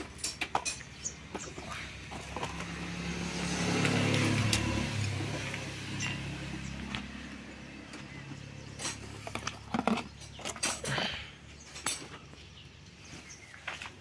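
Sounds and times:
vehicle engine passing by: 1.1s - 10.2s.

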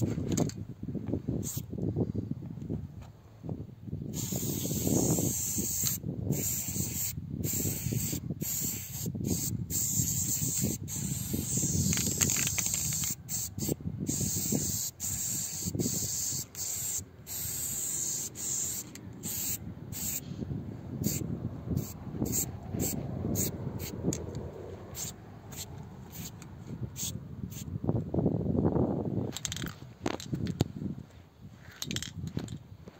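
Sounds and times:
spray paint can hissing: 1.4s - 1.7s, 4.1s - 20.2s, 21.0s - 24.0s, 24.9s - 26.4s, 27.0s - 27.7s.

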